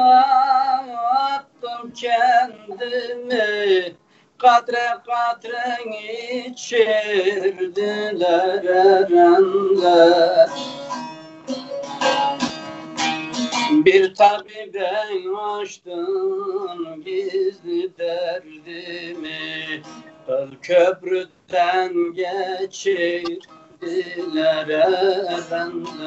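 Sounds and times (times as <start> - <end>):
long-necked lute playing folk tune: 9.5 - 14.0, 23.1 - 26.0.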